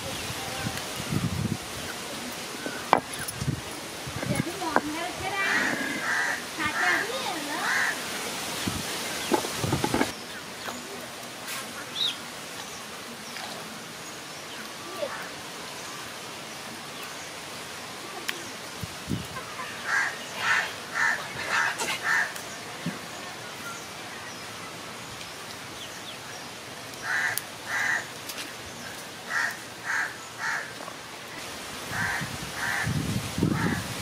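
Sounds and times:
bird calling: 4.4s - 8.0s.

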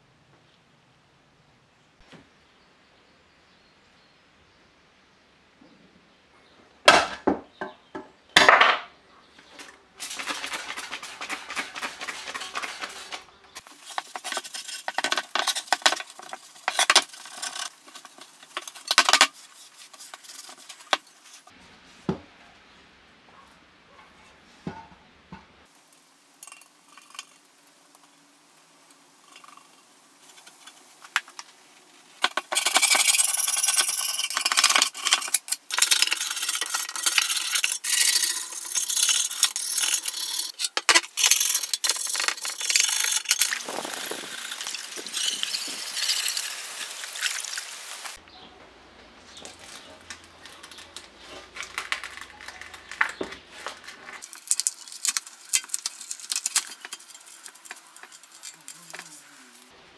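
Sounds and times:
metal scraper stripping paint: 10.0s - 21.1s, 32.2s - 46.5s
metal tool scraping metal: 32.2s - 46.5s, 54.6s - 59.7s.

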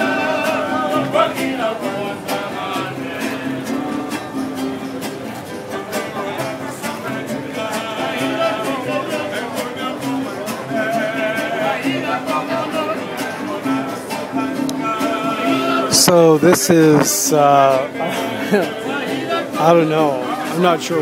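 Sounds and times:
strummed acoustic guitars: 0.0s - 21.0s
violin melody: 11.0s - 21.0s.

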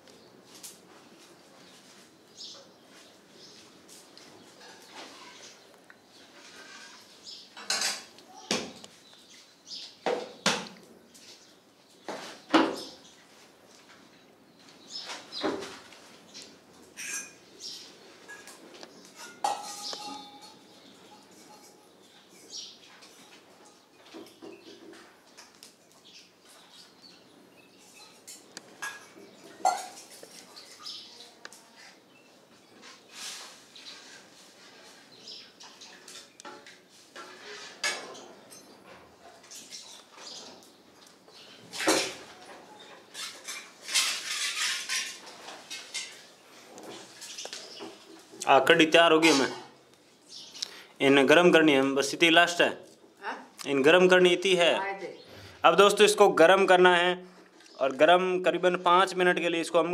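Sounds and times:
metal tins and utensils clinking: 17.0s - 17.4s, 18.2s - 22.0s, 41.7s - 46.3s.

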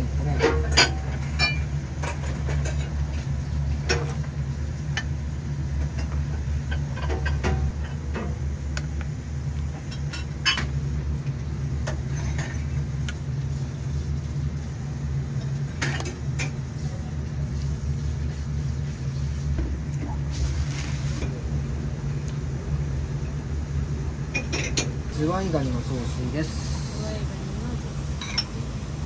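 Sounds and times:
kitchen low hum: 0.0s - 29.0s
dishes and utensils clinking: 0.2s - 4.2s, 5.8s - 8.4s, 9.8s - 10.8s, 11.8s - 12.8s, 24.3s - 25.3s, 28.2s - 28.6s.

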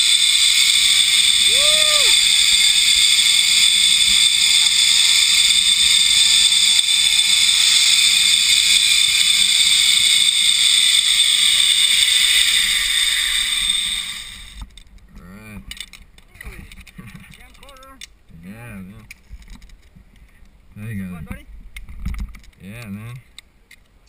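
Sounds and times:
zipline pulleys whirring on cable: 0.0s - 14.7s.

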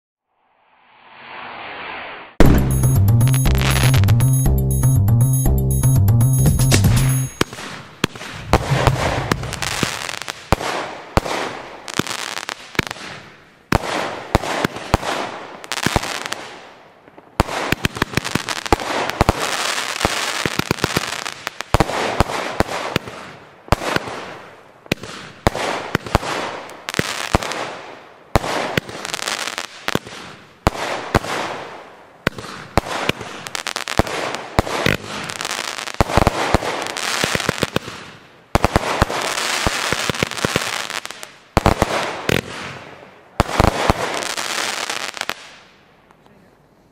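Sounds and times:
fireworks launch reports and bursts: 0.3s - 4.5s, 6.6s - 11.6s.

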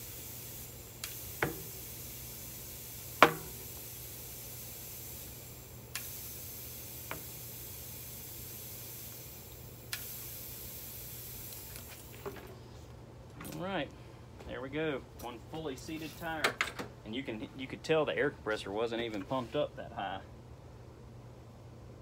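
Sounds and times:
air hissing into tire: 0.0s - 12.8s
tire beads popping onto rim: 1.0s - 12.5s.

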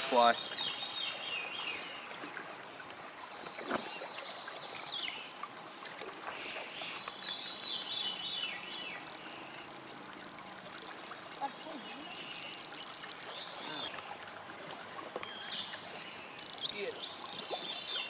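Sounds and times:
creek flowing: 0.0s - 18.0s
songbird singing: 0.1s - 2.4s, 3.3s - 5.5s, 6.2s - 18.0s.

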